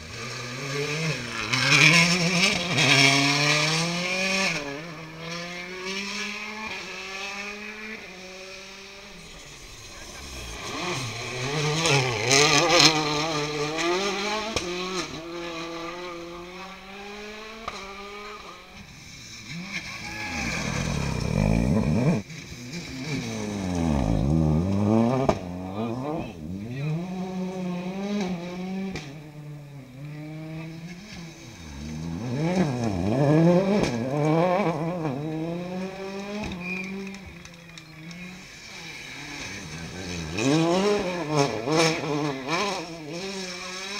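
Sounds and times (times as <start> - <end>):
rally car engines revving: 0.0 - 43.9
car passing by: 0.1 - 26.2.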